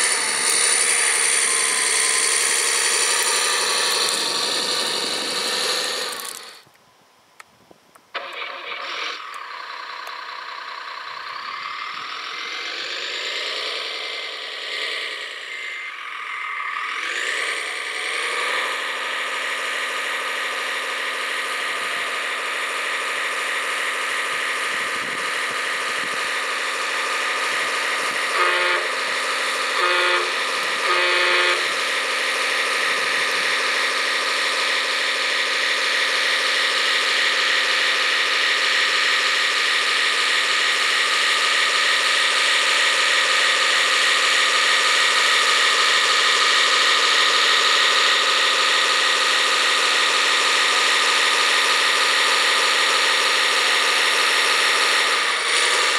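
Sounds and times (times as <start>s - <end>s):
toy truck motor whine: 0.0s - 6.7s, 8.2s - 55.9s
horn toots: 28.3s - 29.1s, 29.7s - 31.8s.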